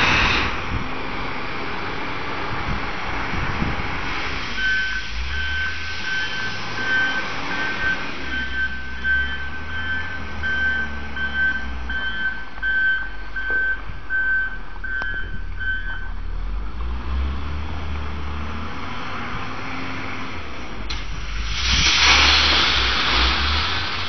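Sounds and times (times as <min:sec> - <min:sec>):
reversing alarm beeping: 0:04.6 - 0:16.2.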